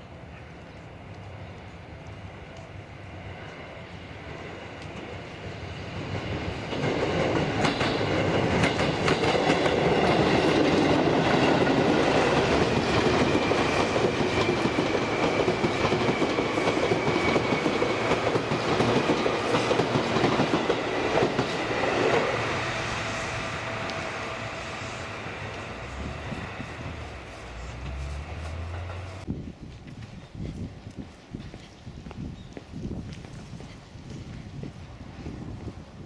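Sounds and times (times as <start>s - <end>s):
train wheels clacking on rails: 4.8s - 29.3s.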